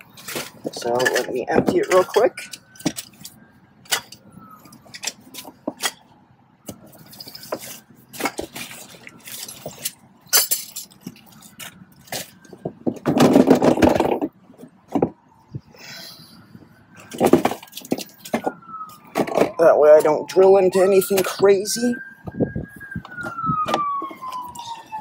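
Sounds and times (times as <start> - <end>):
gear knocking and clinking: 9.3 - 14.3.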